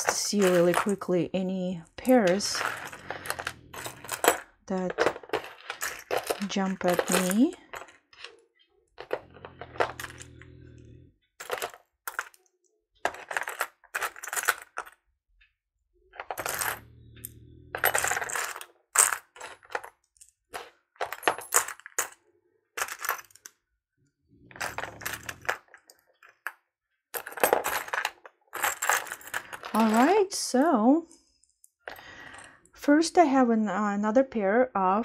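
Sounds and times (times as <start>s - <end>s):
earrings clinking together: 0.0s - 1.2s, 1.8s - 8.4s.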